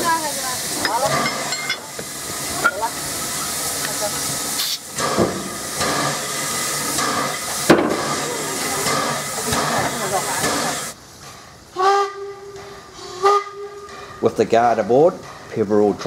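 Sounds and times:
steam hissing from locomotive: 0.0s - 16.0s
metallic clanks of hoses: 0.8s - 2.8s.

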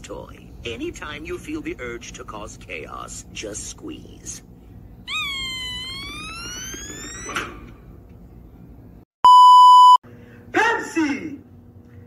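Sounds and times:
stress toy squealing: 5.1s - 7.5s
test-tone beep: 9.2s - 10.0s.

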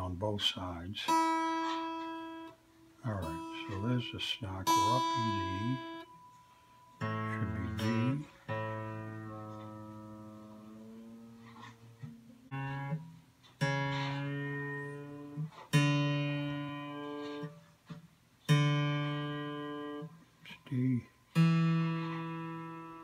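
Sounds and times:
acoustic guitar string plucked: 1.1s - 23.0s
guitar string pitch sliding up: 3.1s - 6.1s, 7.0s - 17.6s.

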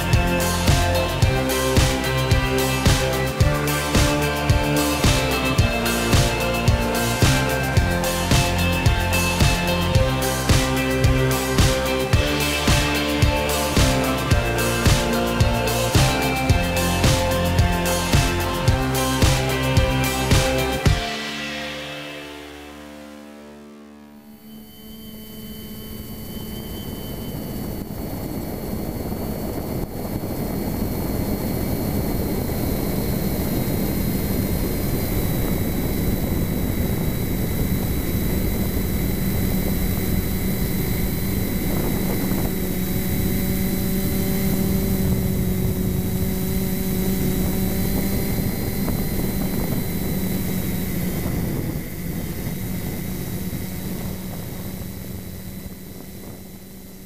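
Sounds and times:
quadcopter motors humming and whining: 0.0s - 21.6s, 24.1s - 57.0s.

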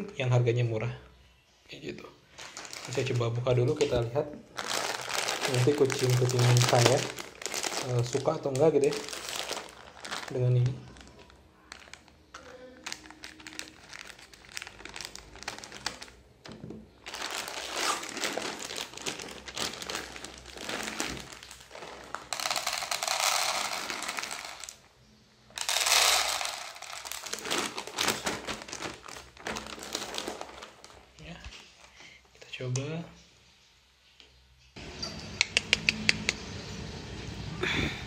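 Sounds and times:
plastic bag crinkling: 2.3s - 24.9s, 25.5s - 32.1s
kibble pouring into plastic bowl: 4.7s - 10.4s, 17.1s - 24.8s, 25.6s - 28.8s
scissors snipping plastic bag: 17.1s - 21.8s.

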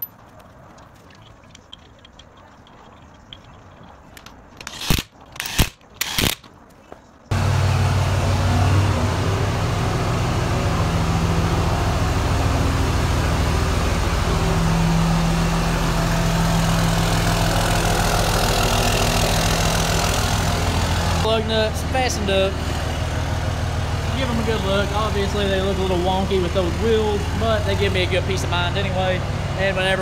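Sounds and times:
pickup engine idling: 7.3s - 30.0s.

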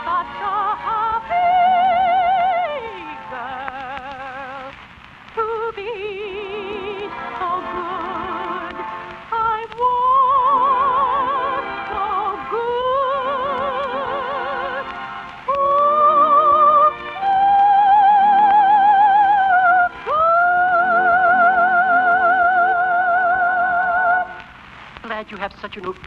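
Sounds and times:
soprano singing: 0.0s - 24.5s
orchestra: 6.7s - 24.4s.

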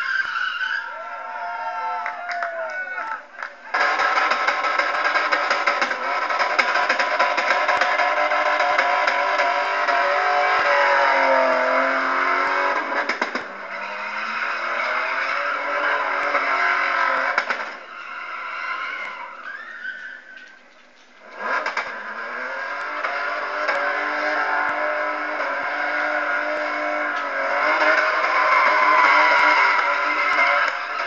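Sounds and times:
tyres squealing: 0.0s - 1.2s, 17.8s - 21.1s
car engine revving: 3.4s - 19.3s, 21.2s - 31.0s.

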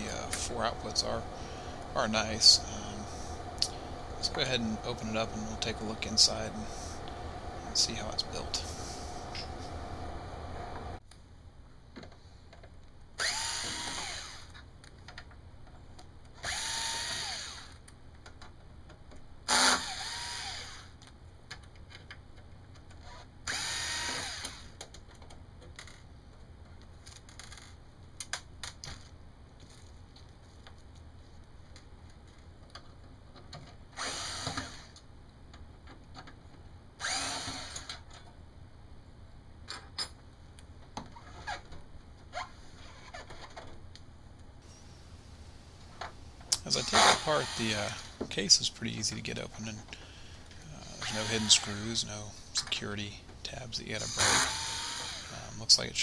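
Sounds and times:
power screwdriver whirring: 13.2s - 14.5s, 16.4s - 17.8s, 19.5s - 20.9s, 23.5s - 24.7s, 34.0s - 35.0s, 37.0s - 38.0s, 46.7s - 48.2s, 50.8s - 51.9s, 54.0s - 55.4s
screws clicking: 37.0s - 38.0s, 46.6s - 48.1s, 54.0s - 55.3s.

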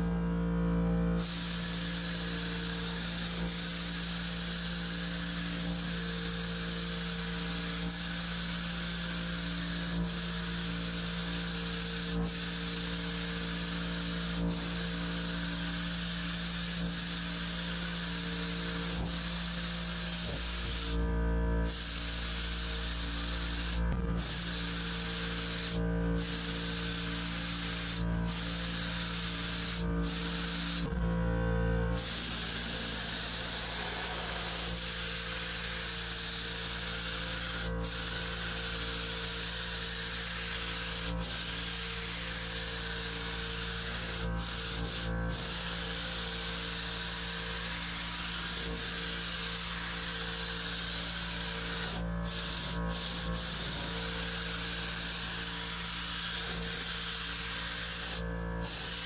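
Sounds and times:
spray gun hissing: 1.2s - 59.0s
steady hum: 29.0s - 36.6s.

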